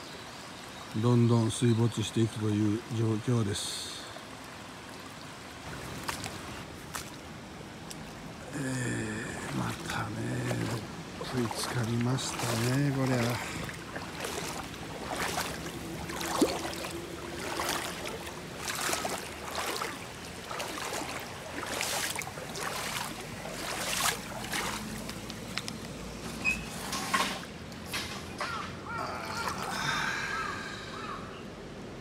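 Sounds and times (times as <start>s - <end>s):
water trickling: 0.1s - 27.5s
footsteps splashing in water: 5.6s - 8.3s, 9.1s - 27.5s, 29.3s - 29.8s.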